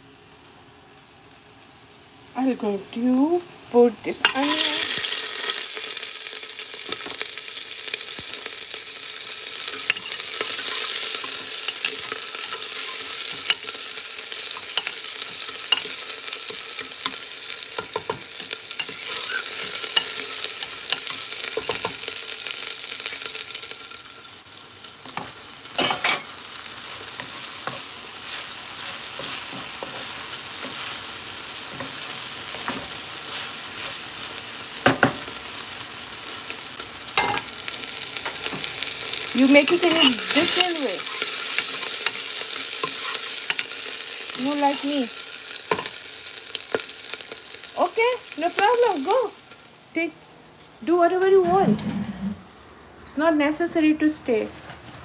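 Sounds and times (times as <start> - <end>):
okra frying in a pan: 0.0 - 54.2
onions sizzling in hot oil: 0.2 - 51.4
metal spoon scraping pot: 39.7 - 42.2.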